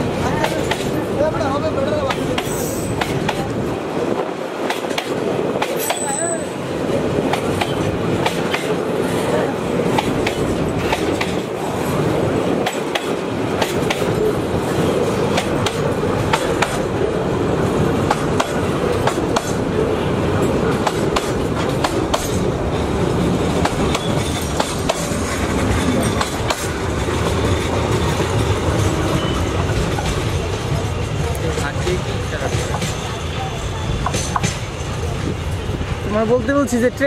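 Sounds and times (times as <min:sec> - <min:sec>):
train wheels rumbling on rails: 0:00.0 - 0:37.0
wheels clicking over rail joints: 0:20.4 - 0:29.0.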